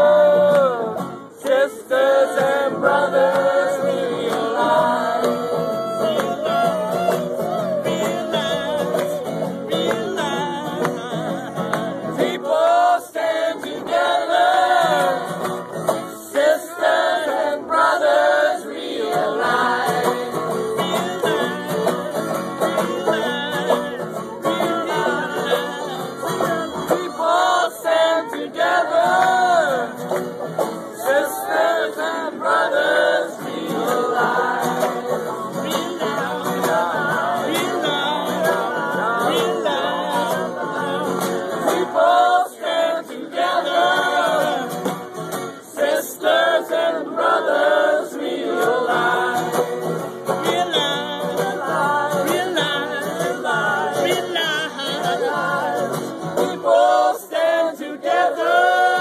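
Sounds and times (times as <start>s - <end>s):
man singing: 0.0s - 15.2s, 19.4s - 30.0s, 33.8s - 44.8s, 48.8s - 59.0s
banjo: 0.0s - 59.0s
crowd singing in unison: 0.0s - 59.0s
strummed acoustic guitar: 0.0s - 59.0s.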